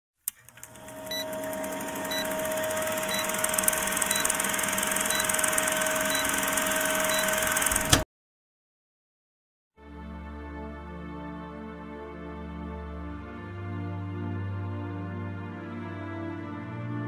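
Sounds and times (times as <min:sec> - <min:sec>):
film projector whirring: 0:00.3 - 0:08.0
short beeps: 0:03.1 - 0:03.4, 0:04.0 - 0:04.4, 0:05.1 - 0:07.5.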